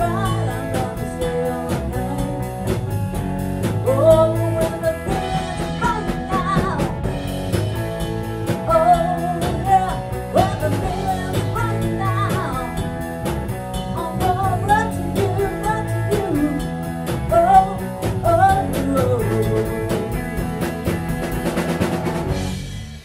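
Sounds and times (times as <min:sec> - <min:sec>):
person singing lead vocal: 0:00.0 - 0:02.8, 0:03.8 - 0:07.1, 0:08.6 - 0:12.9, 0:13.9 - 0:20.6
bass guitar: 0:00.0 - 0:23.0
drum kit and cymbals: 0:00.0 - 0:23.0
electric guitar: 0:00.0 - 0:23.0.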